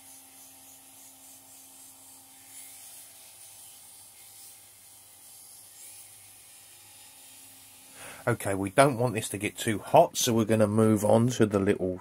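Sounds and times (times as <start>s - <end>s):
bench grinder motor hum: 0.0s - 9.1s
metal rubbing on buffing wheel: 0.0s - 10.3s.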